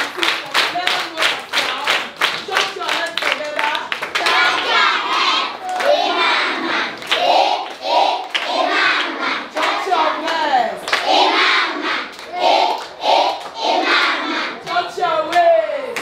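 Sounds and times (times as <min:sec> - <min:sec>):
hand claps: 0:00.0 - 0:04.8
children singing: 0:04.2 - 0:14.7.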